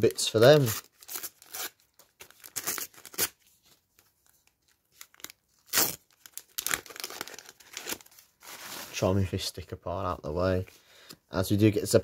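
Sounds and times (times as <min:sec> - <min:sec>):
paper packet tearing and crinkling: 0:00.3 - 0:03.4, 0:05.0 - 0:09.1.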